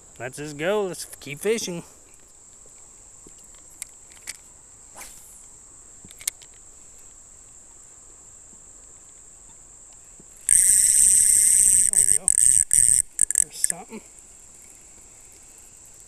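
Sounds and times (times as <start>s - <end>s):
insects trilling: 0.0s - 16.0s
faint clicks: 9.9s - 16.0s
loud pulsing insect buzz: 10.4s - 16.0s.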